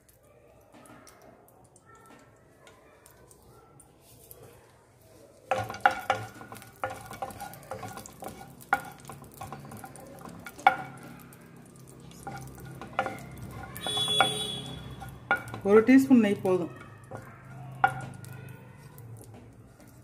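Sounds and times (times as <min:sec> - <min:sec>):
metal spoon knocking on metal pan: 0:05.5 - 0:11.2, 0:12.2 - 0:18.4.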